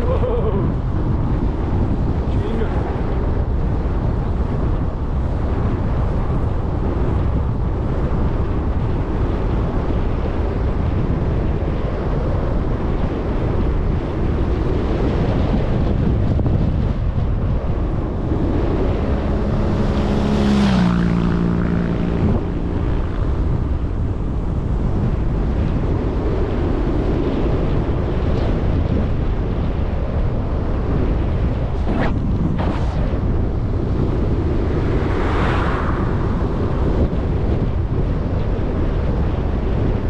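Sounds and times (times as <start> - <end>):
wind rushing on microphone: 0.0 - 40.0
motor vehicle passing: 17.4 - 24.1, 31.6 - 37.6.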